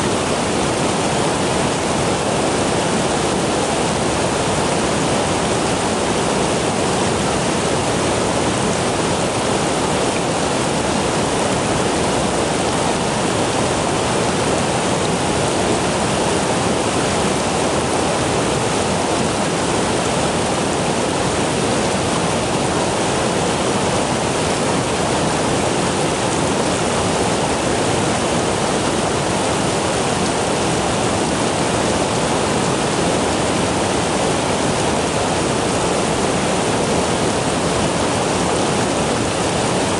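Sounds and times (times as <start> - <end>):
stream water rushing: 0.0 - 39.9.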